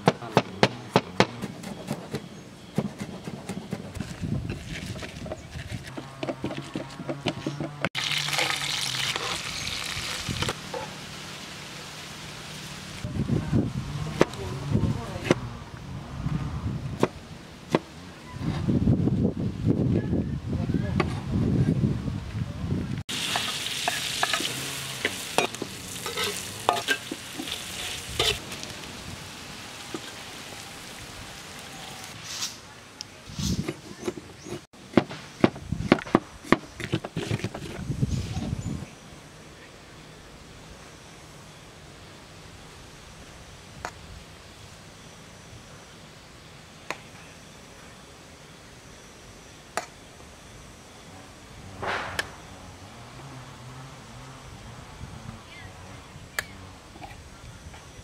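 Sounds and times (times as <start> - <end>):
pestle grinding in wooden bowl: 3.0 - 7.8
fish sizzling in hot oil: 8.0 - 13.0, 23.1 - 32.1
metal spoon scraping a wok: 23.2 - 28.4.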